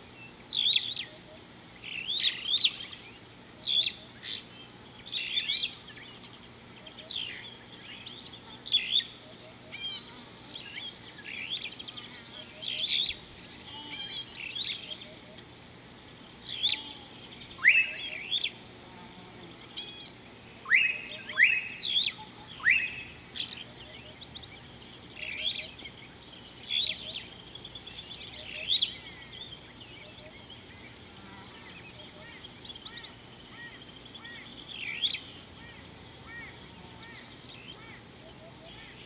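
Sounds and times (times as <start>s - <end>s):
birds chirping and trilling: 0.0s - 18.8s, 19.4s - 39.0s
bird whistled calls: 17.6s - 18.5s, 19.8s - 24.2s.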